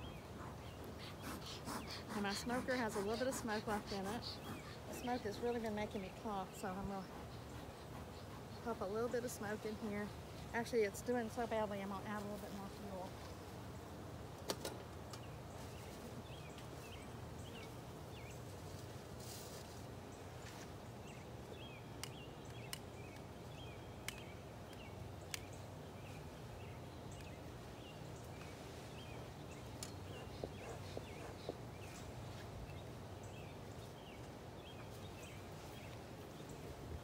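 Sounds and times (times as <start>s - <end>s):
low background noise: 0.0s - 37.0s
small bird chirping: 27.1s - 32.1s.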